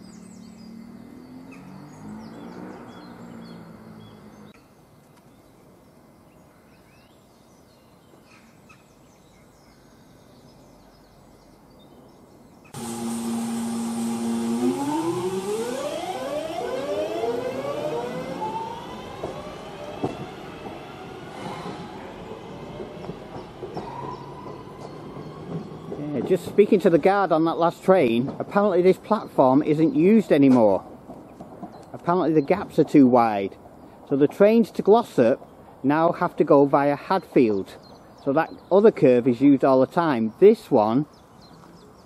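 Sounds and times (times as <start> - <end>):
birds chirping: 0.0 - 42.0
faint engine note: 12.8 - 23.1
diesel train engine accelerating: 12.8 - 30.3.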